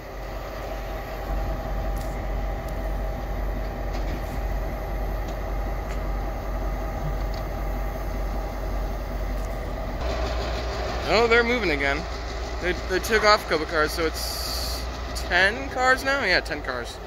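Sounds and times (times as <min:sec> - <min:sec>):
locomotive engines rumbling: 0:00.0 - 0:17.0.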